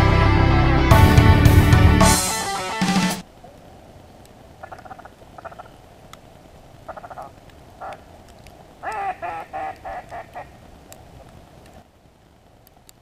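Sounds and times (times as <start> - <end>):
waterfowl honking calls: 4.6 - 5.9, 6.8 - 8.1, 8.8 - 10.6.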